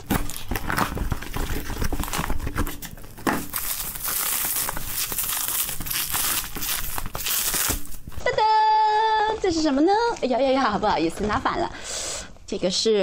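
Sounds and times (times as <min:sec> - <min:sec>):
cardboard rustling and scraping: 0:00.0 - 0:08.2
packing tape pulled off cardboard: 0:00.0 - 0:08.2
bubble wrap crinkling: 0:00.0 - 0:08.3.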